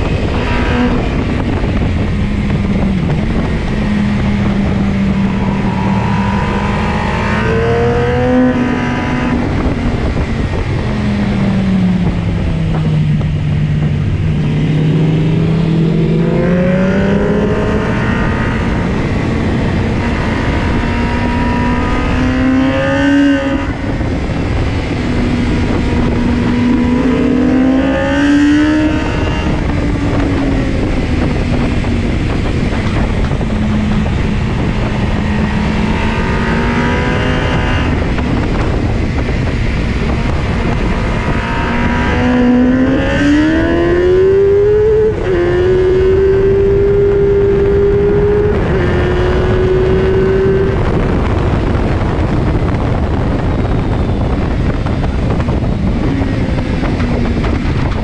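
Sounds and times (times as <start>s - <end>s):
motorcycle engine revving: 0.0s - 58.0s
wind rushing: 0.0s - 58.0s.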